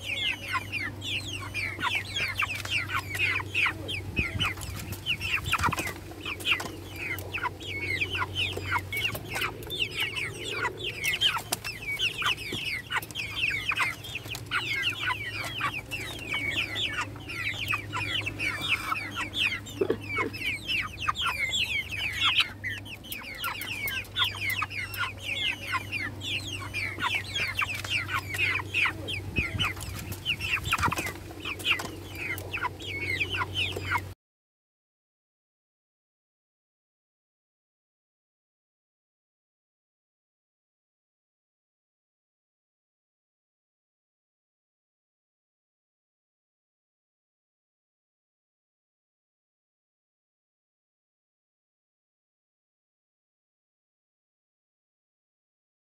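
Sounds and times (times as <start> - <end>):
chickens calling: 0.0 - 34.2.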